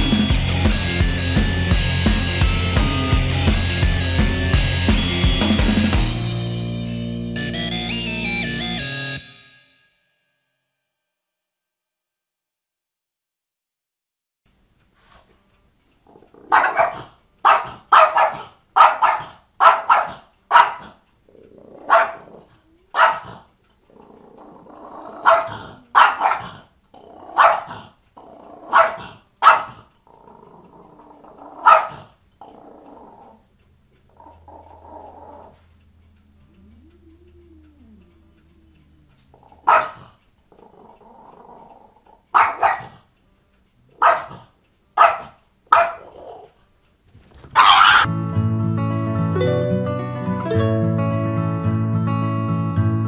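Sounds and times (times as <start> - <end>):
dog growling: 16.0 - 19.2, 19.8 - 43.1, 43.8 - 46.6
dog barking: 16.2 - 21.0, 21.8 - 23.5, 25.0 - 27.9, 28.6 - 29.9, 31.4 - 32.6, 39.3 - 40.2, 42.3 - 43.1, 43.9 - 46.5, 47.5 - 48.1.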